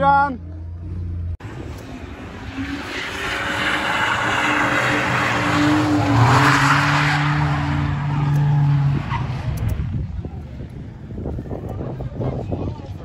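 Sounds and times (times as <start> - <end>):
car engine at high revs: 1.4 - 10.8.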